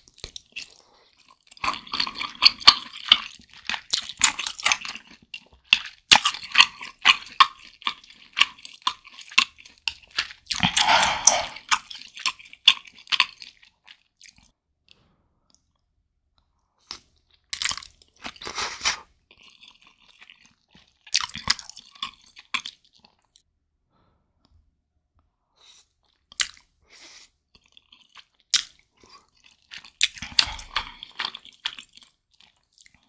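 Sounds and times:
wet chewing: 0.0s - 14.6s, 16.8s - 23.4s, 25.7s - 33.0s
person slurping noodles: 10.5s - 11.9s, 30.1s - 31.2s.

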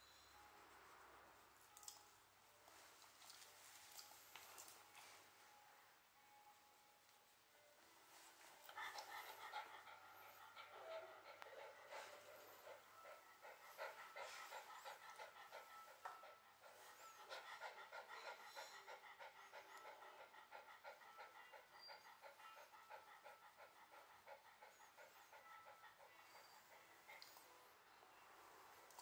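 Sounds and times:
dog panting: 8.4s - 27.7s.

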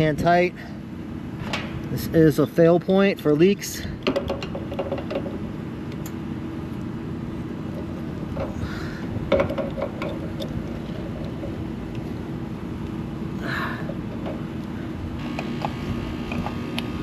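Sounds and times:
air conditioning unit hum: 0.0s - 17.0s
wrench clicking on metal caps: 9.3s - 11.5s.

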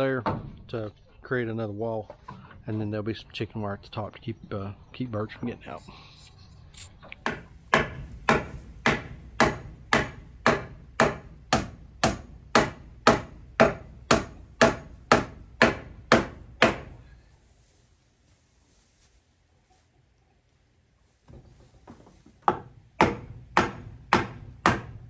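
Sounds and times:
hammer nailing wooden board: 7.2s - 16.9s, 22.4s - 25.0s.

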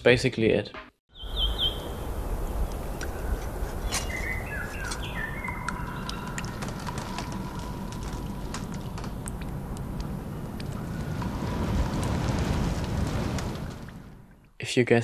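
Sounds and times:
birds chirping: 1.1s - 11.6s
low ambient rumble: 1.2s - 15.0s.

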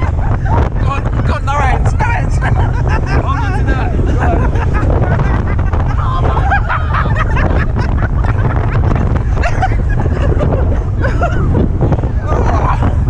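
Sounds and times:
people shouting and laughing: 0.0s - 13.0s
wind buffeting microphone: 0.0s - 13.0s.

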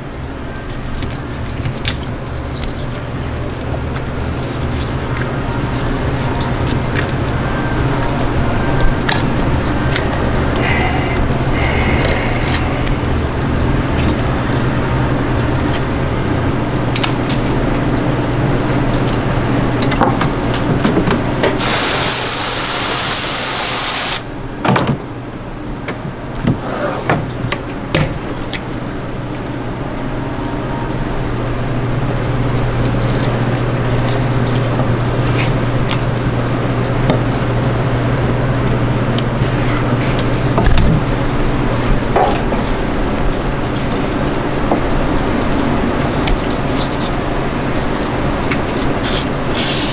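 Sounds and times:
hissing spray: 21.6s - 24.3s.

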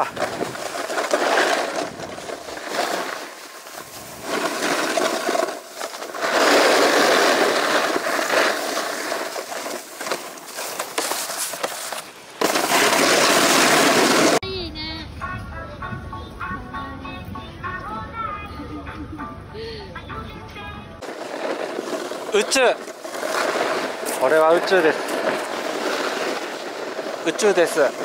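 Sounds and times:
snowboard scraping over snow: 0.0s - 14.4s, 21.0s - 28.0s.

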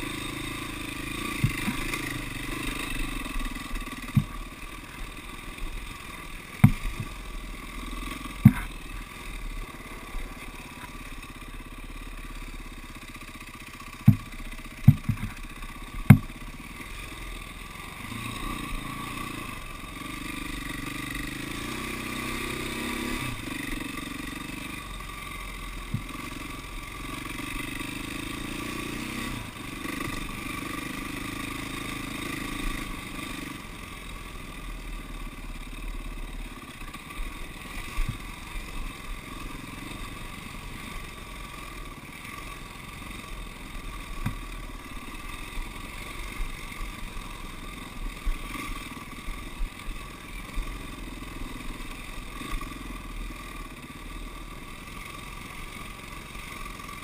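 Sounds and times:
dirt bike engine running: 0.0s - 57.0s
bike knocking over bumps: 1.3s - 2.0s, 4.0s - 5.0s, 6.6s - 7.2s, 8.3s - 8.9s, 13.9s - 16.4s, 25.8s - 26.2s.

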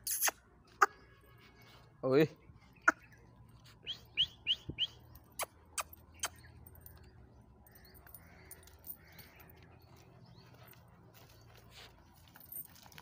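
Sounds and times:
person calling a dog: 0.0s - 1.0s.

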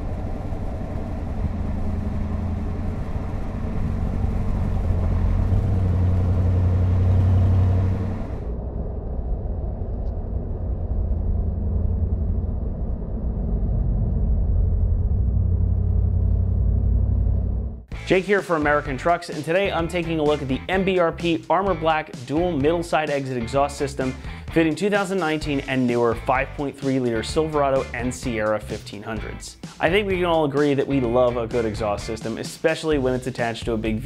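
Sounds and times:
wind and road noise: 0.0s - 17.9s
low exhaust note: 0.0s - 21.0s.

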